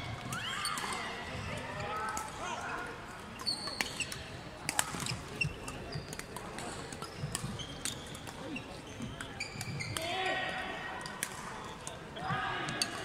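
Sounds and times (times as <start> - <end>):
sneakers squeaking on wooden floor: 3.4 - 4.2, 5.1 - 6.3, 7.0 - 10.0
rackets striking shuttlecock: 3.4 - 10.1.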